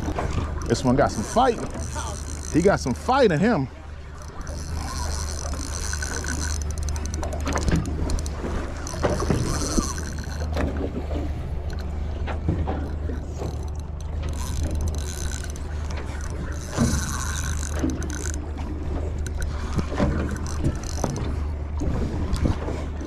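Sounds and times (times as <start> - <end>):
reel gears clicking: 0.0 - 22.8
low hum: 0.0 - 23.0
reel whirring: 0.0 - 23.0.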